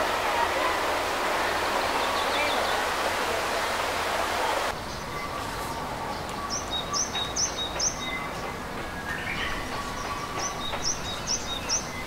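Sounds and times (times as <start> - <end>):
outdoor background hiss: 0.0 - 12.0
bird chirping: 4.8 - 12.0.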